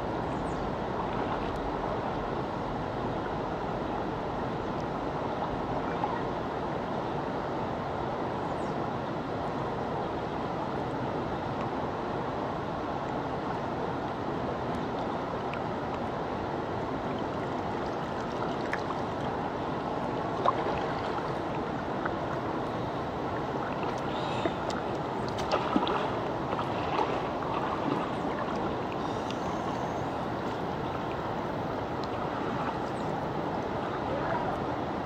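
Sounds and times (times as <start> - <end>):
water rushing over rocks: 12.7 - 35.0.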